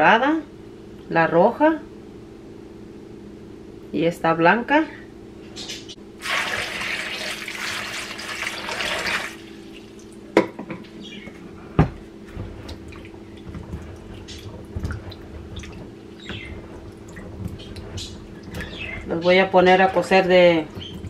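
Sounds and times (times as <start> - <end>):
water pouring into bowl: 6.2 - 10.1.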